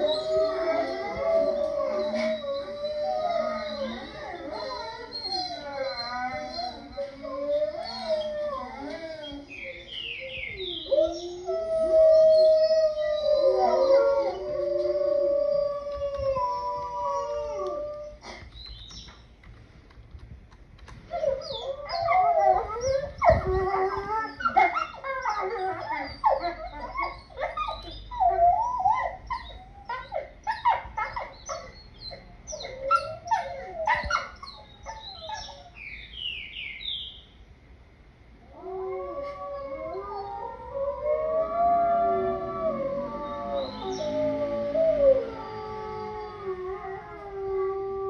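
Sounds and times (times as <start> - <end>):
wolves howling: 0.0 - 18.2, 21.1 - 31.8, 38.5 - 48.0
wolves yipping and barking: 0.0 - 18.2, 21.1 - 35.9, 39.2 - 47.4.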